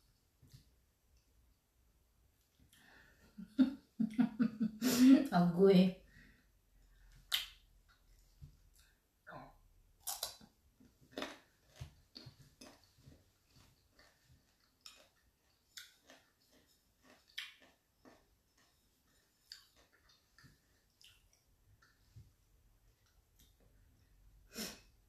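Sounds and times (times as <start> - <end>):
mango being bitten and chewed: 7.2 - 9.0, 10.0 - 22.1.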